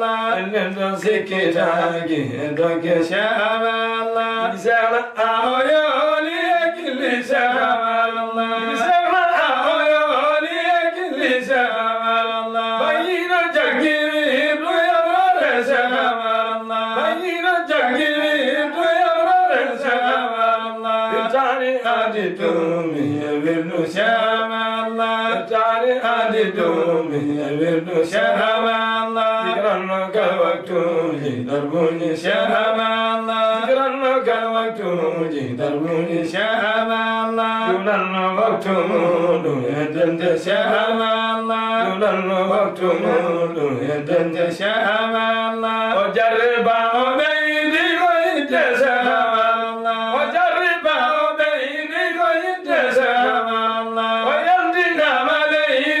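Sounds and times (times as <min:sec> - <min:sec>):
men chanting: 0:00.0 - 0:56.0.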